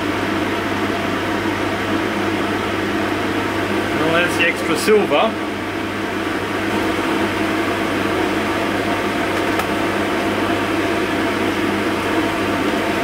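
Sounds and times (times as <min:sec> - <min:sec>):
machine hum and whir: 0:00.0 - 0:13.0.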